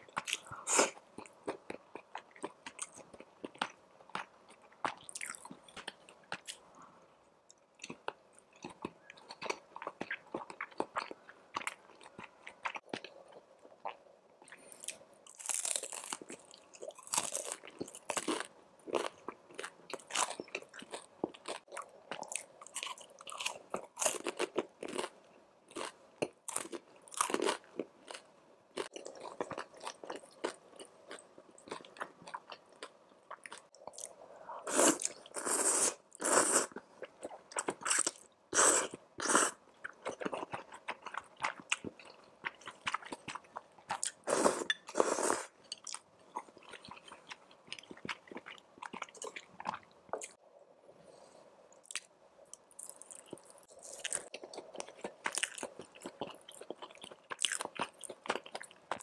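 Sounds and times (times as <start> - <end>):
crunching crispy snack: 15.3 - 21.7.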